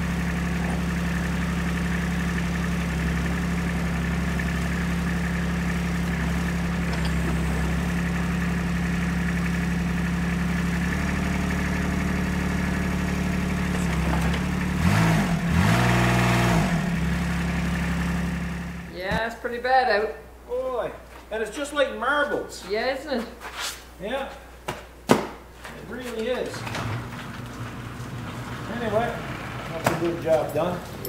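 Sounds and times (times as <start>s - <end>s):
utility vehicle engine idling and revving: 0.0s - 19.0s, 26.6s - 31.0s.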